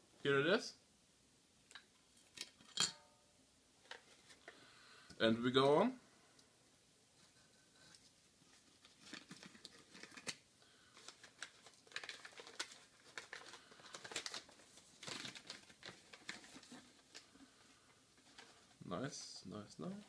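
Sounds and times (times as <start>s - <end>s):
newspaper crinkling and rustling: 8.4s - 17.4s.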